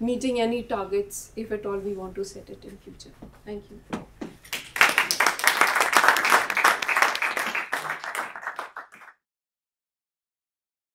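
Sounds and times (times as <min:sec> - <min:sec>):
audience applauding: 0:04.5 - 0:09.2.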